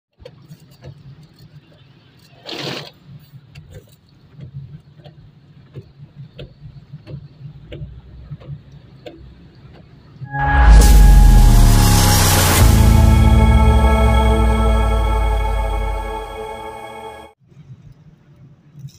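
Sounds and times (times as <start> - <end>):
light rain ticks: 3.2 - 10.2.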